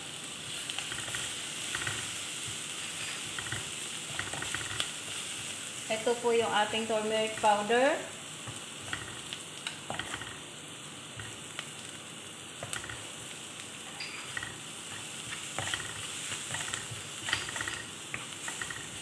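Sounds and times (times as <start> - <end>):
onions sizzling in oil: 0.0 - 19.0
wooden spatula scraping a pan: 0.7 - 5.5, 8.5 - 10.4, 13.9 - 19.0.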